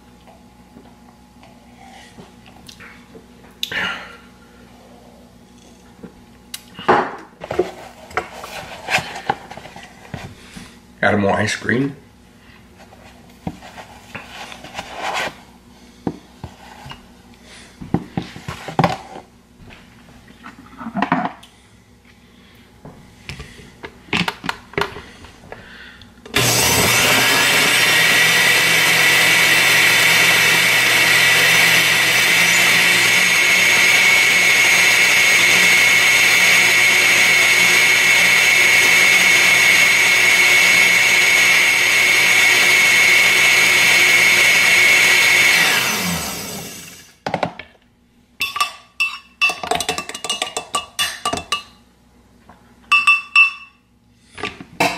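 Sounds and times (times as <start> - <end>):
blender whining: 26.3 - 47.2.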